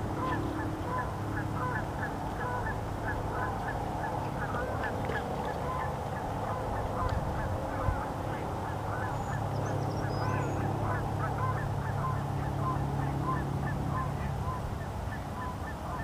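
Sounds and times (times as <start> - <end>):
geese honking: 0.0 - 16.0.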